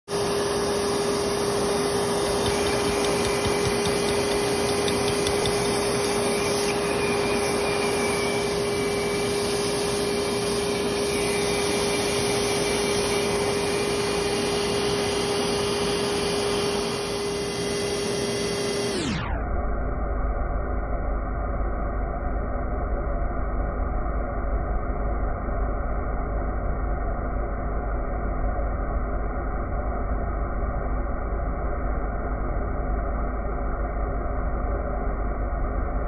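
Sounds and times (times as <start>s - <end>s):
vacuum cleaner humming: 0.1s - 19.0s.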